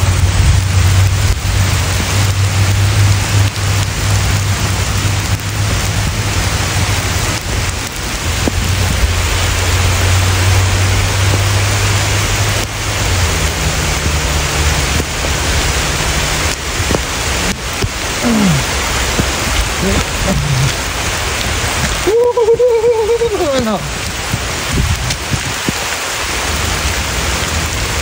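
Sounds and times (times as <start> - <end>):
rain on a paved path and leaves: 0.0 - 28.0.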